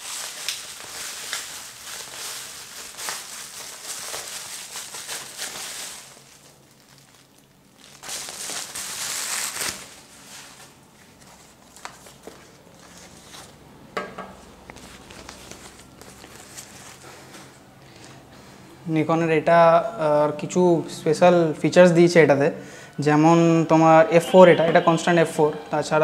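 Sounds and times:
bubble wrap crinkling: 0.0 - 13.6, 14.4 - 18.1.

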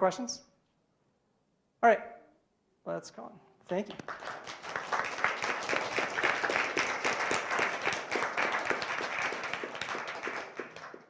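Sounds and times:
audience applauding: 3.9 - 11.0.

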